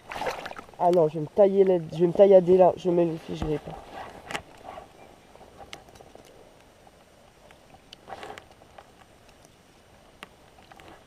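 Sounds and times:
fishing tackle clicks and rustles: 3.2 - 11.0.

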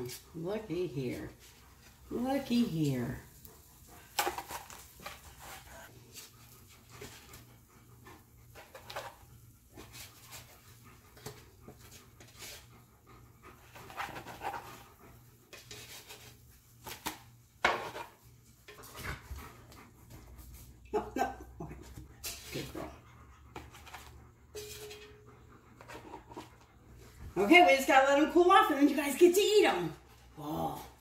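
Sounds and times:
dog panting: 0.0 - 15.6, 18.4 - 31.0.

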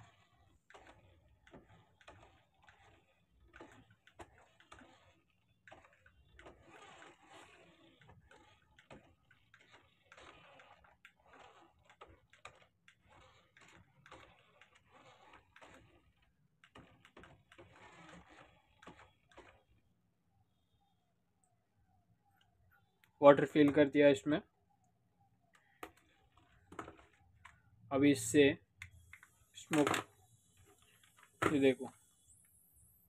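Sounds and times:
toy car drivetrain clicking: 0.0 - 19.7, 28.2 - 32.5.

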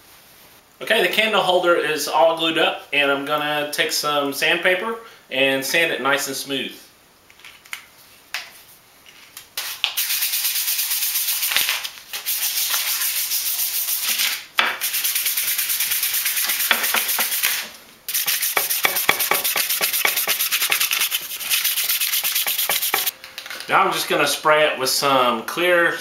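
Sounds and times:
sandpaper rasping on wood: 12.2 - 23.1.

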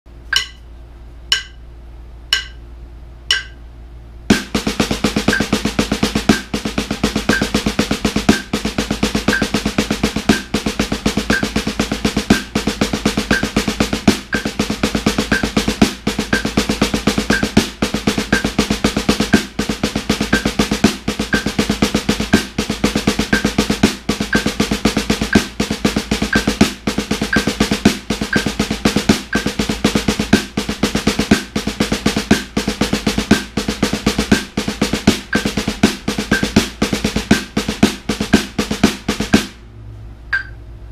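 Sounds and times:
metronome clicking: 0.3 - 0.7, 1.3 - 1.6, 2.3 - 2.6, 3.3 - 3.6, 4.3 - 6.6, 7.2 - 29.8, 35.3 - 36.7, 40.3 - 40.6
drumstick rolls on practice pad: 4.3 - 39.6.

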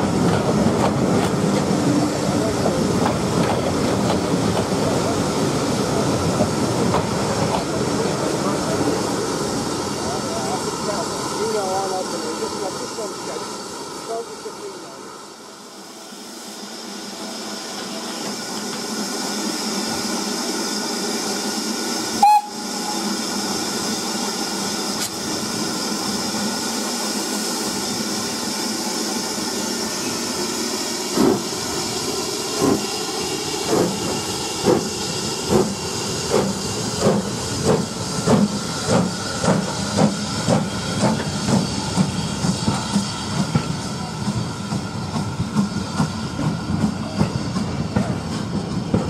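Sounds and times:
steam locomotive hissing steam: 0.0 - 49.0
locomotive whistle blast: 22.1 - 23.2.

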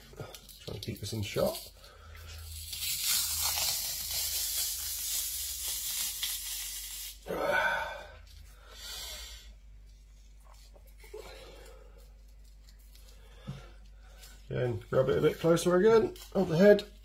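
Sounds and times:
fish skin tearing: 0.3 - 7.2.

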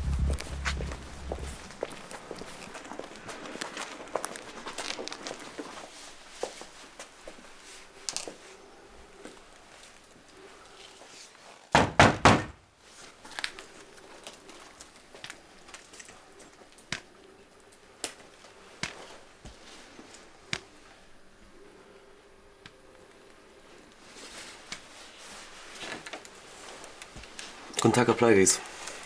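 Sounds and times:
faint steady hum: 0.0 - 11.4, 12.7 - 29.0
knocking on a door: 11.8 - 12.6.

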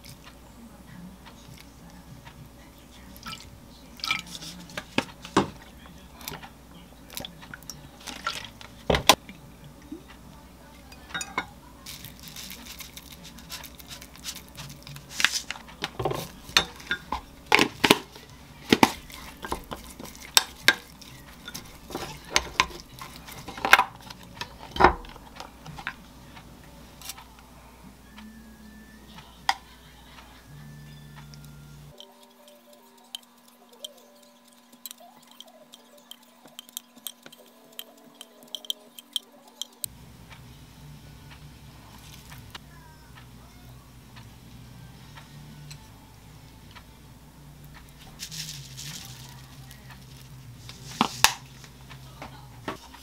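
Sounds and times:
wooden spoon clinking in glass mug: 10.9 - 11.5, 31.9 - 39.8.

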